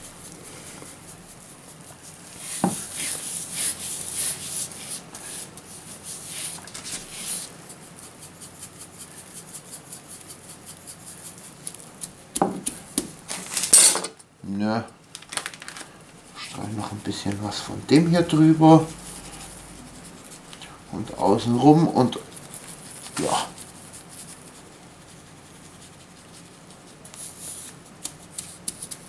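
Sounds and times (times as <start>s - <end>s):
hands rubbing spice into meat: 0.0s - 13.3s, 16.2s - 29.0s
cling film crinkling: 15.0s - 16.0s.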